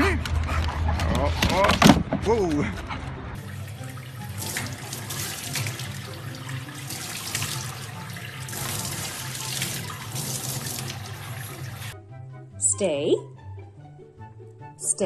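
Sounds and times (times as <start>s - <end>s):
water running and splashing: 3.4s - 12.0s.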